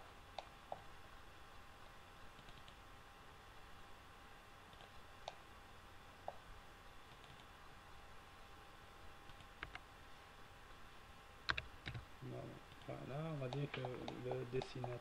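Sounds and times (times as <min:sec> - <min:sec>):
faint mouse clicks: 0:02.2 - 0:02.8, 0:04.7 - 0:05.4, 0:07.1 - 0:07.5, 0:12.7 - 0:15.0.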